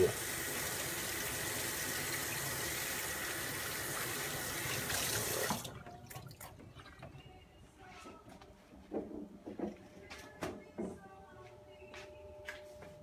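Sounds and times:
faucet running into steel sink: 0.0s - 6.5s.

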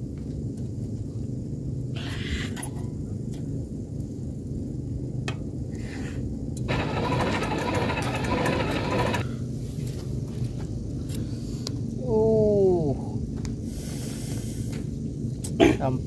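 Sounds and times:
fan blowing air rushing: 3.0s - 16.0s
blower fan motor hum: 6.5s - 10.8s.

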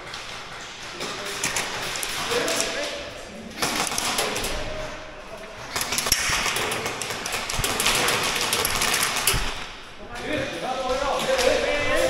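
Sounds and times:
rapid airsoft gunfire: 3.6s - 4.6s, 5.6s - 9.8s.

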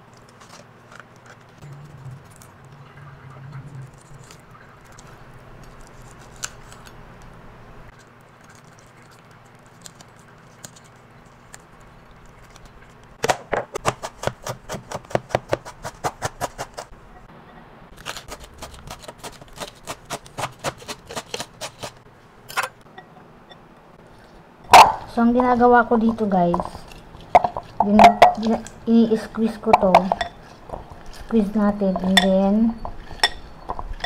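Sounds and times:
knife chopping on plastic board: 13.2s - 16.9s.

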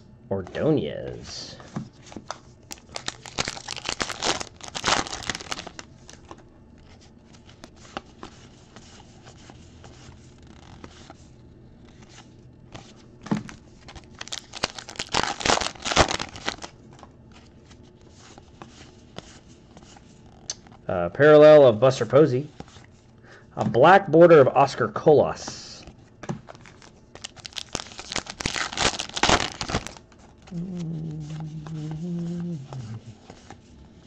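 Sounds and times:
cards rustling and flipping: 0.5s - 20.8s, 25.4s - 34.0s
card pack wrappers tearing: 2.7s - 6.3s, 13.8s - 16.7s, 26.5s - 31.9s.

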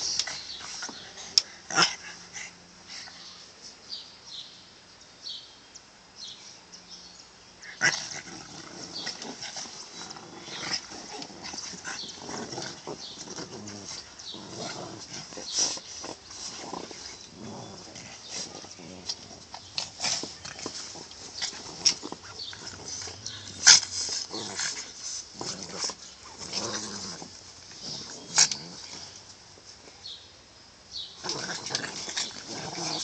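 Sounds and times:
dogs scuffling on a cushion: 7.8s - 29.7s.

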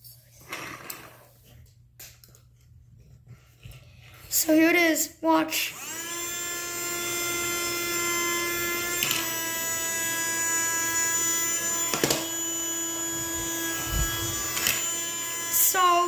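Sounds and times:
desk vacuum motor whine: 5.7s - 16.0s.

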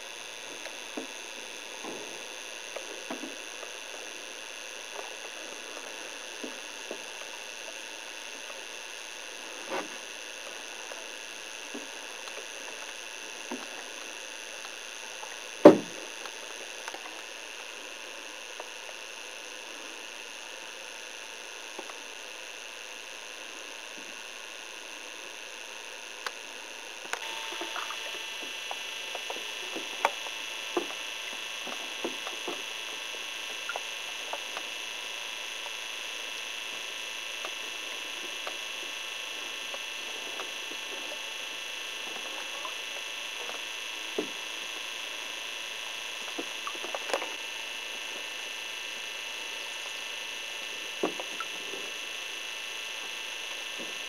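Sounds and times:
steady hiss: 0.0s - 54.0s
small clicks and ticks: 0.4s - 19.2s, 21.3s - 22.2s, 27.0s - 47.4s.

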